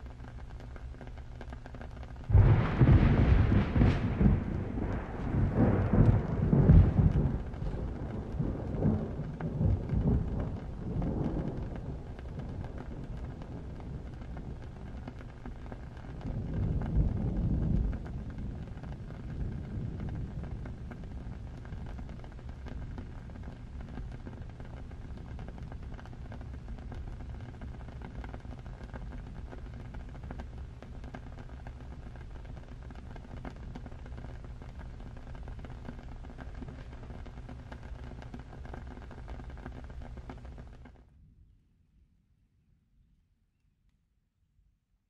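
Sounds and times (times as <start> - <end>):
small ticks and crackles: 0.0 - 41.0
steady rain hiss: 0.0 - 41.1
low rumble: 2.3 - 30.8.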